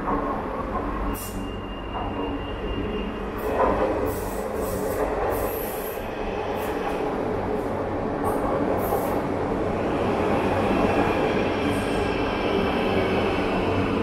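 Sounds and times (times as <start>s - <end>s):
train wheel squeals: 0.8s - 7.0s.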